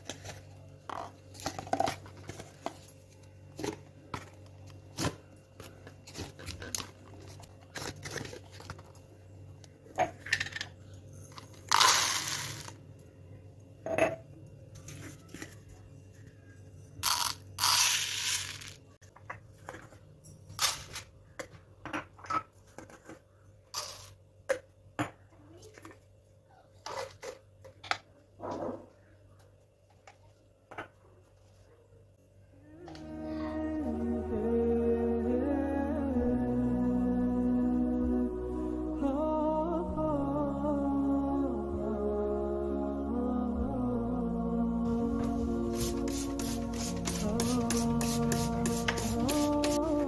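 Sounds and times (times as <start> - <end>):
dry seeds pouring into a cup: 11.7 - 12.8.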